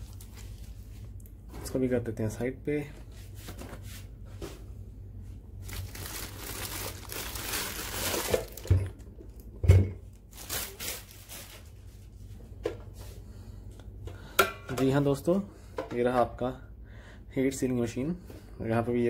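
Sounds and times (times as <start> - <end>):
plastic wrapping crinkling: 0.0 - 1.3, 5.6 - 9.5, 10.1 - 12.1.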